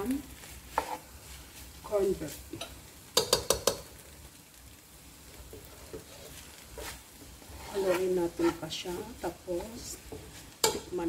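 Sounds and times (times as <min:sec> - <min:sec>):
spoon stirring noodles in pot: 0:00.6 - 0:01.1, 0:02.5 - 0:04.1, 0:05.3 - 0:08.9
spoon knocking against pot: 0:03.2 - 0:03.9.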